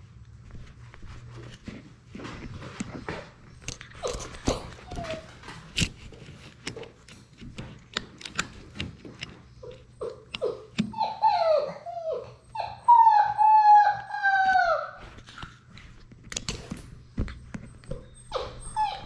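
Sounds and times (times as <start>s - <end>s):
puppy whimpering and whining: 3.0s - 5.8s, 9.5s - 15.3s, 17.7s - 19.0s.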